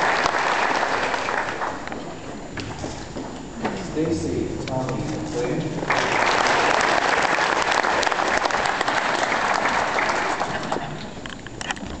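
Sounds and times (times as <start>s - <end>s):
audience applauding: 0.0s - 2.3s, 5.8s - 11.3s.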